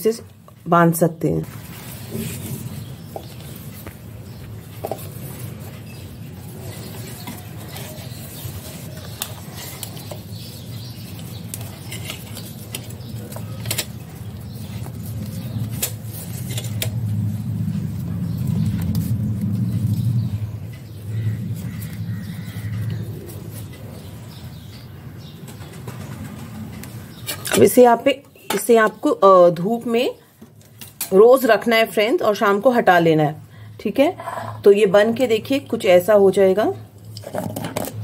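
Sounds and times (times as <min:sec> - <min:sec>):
low steady rumble: 0:14.3 - 0:24.4.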